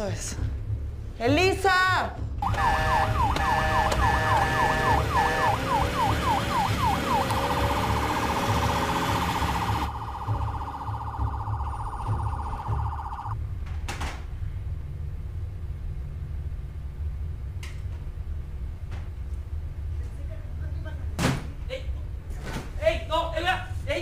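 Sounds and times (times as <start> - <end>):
ambulance siren: 2.4 - 13.4.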